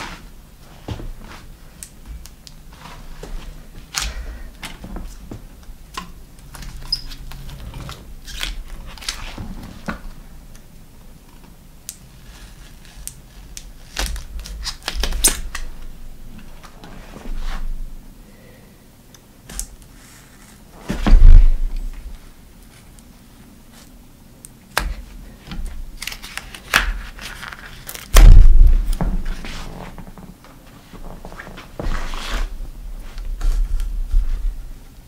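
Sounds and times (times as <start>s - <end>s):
hands stripping tape with rustles: 1.3s - 5.3s, 5.9s - 10.7s, 11.8s - 17.6s, 19.5s - 22.0s, 23.7s - 30.2s, 31.0s - 34.4s.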